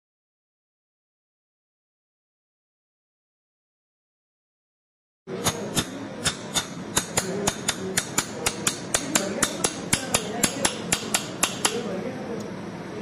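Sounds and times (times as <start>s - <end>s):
mallet striking a chisel: 5.4s - 11.9s.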